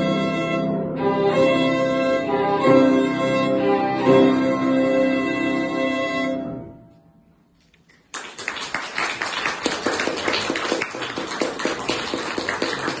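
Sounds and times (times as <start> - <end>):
violin and piano chord: 0.0 - 7.0
audience applause: 8.0 - 13.0.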